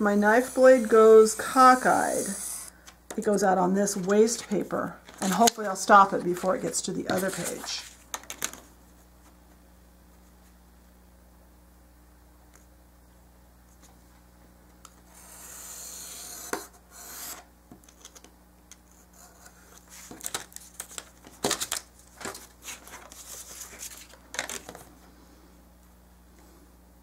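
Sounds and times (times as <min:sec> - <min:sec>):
paper rustling: 0:04.0 - 0:08.6, 0:19.8 - 0:24.9.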